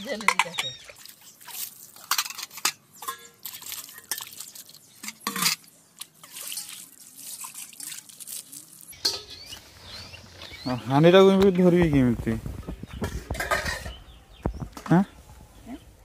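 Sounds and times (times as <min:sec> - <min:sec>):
metal dishes clinking: 0:00.0 - 0:00.8, 0:02.0 - 0:04.4, 0:05.0 - 0:06.8, 0:09.0 - 0:09.5, 0:13.0 - 0:14.0
water splashing and pouring: 0:00.3 - 0:09.0.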